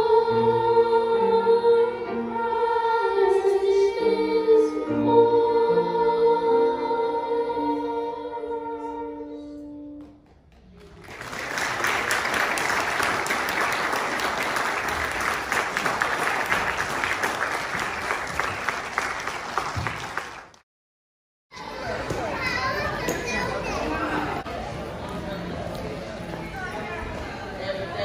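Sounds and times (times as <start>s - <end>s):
children's choir singing: 0.0s - 9.8s
audience applauding: 10.5s - 20.6s.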